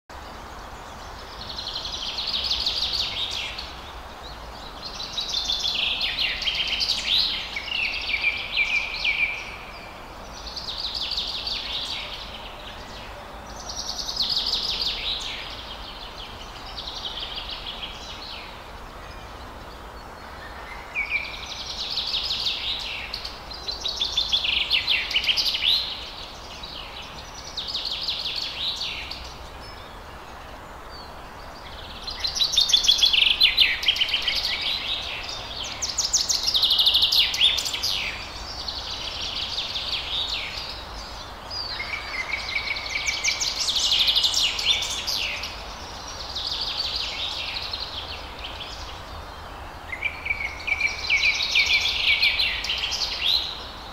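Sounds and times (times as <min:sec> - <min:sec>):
background hiss: 0:00.1 - 0:53.9
songbird warbling and trilling: 0:31.0 - 0:53.7.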